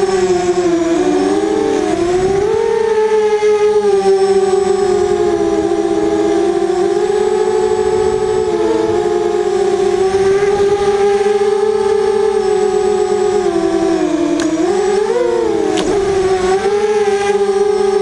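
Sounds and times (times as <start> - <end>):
quadcopter motors whining: 0.0 - 18.0.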